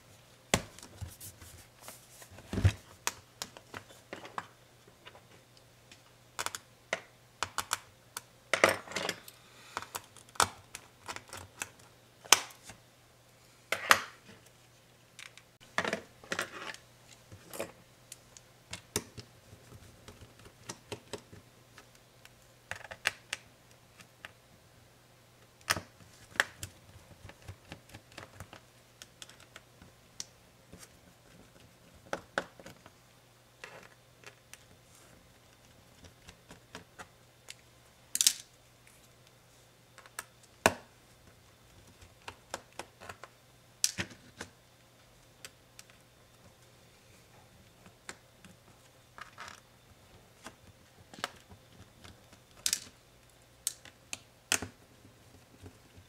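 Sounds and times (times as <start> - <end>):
laptop and tools clicking and knocking: 5.9 - 12.6, 18.7 - 22.0, 30.7 - 33.0.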